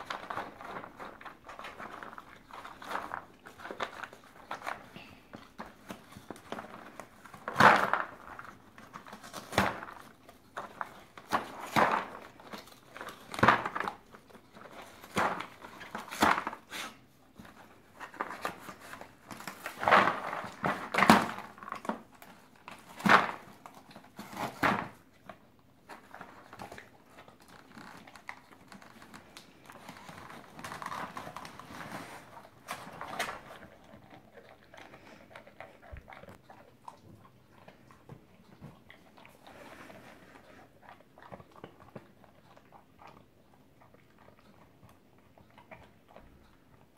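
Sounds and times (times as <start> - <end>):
dog rummaging in cardboard: 14.6 - 25.0, 25.9 - 33.7.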